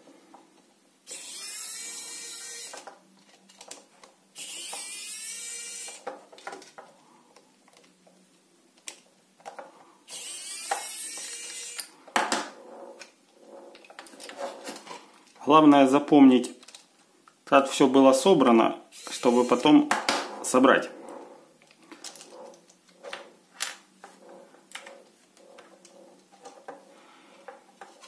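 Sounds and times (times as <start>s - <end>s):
plastic pump parts scraping: 12.5s - 15.4s, 20.4s - 28.0s.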